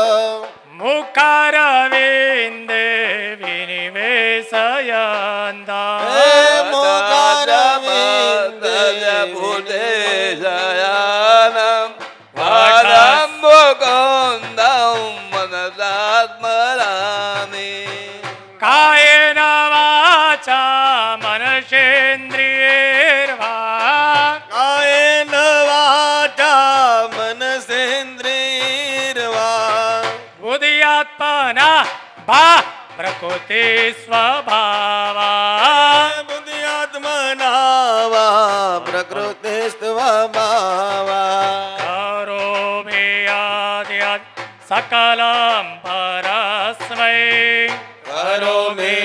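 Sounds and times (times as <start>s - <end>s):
musical accompaniment: 0.0s - 49.0s
person singing devotional verse: 0.0s - 49.0s
person chanting a hymn: 4.3s - 11.6s, 12.4s - 16.1s.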